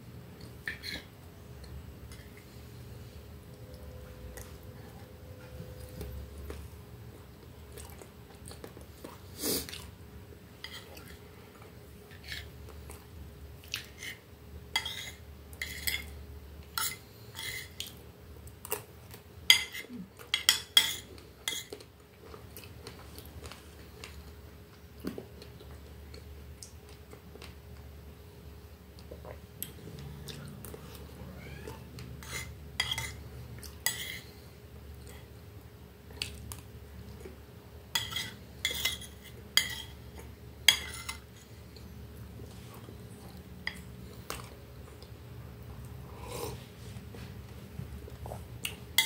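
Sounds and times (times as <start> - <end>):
chewing: 5.4 - 9.9.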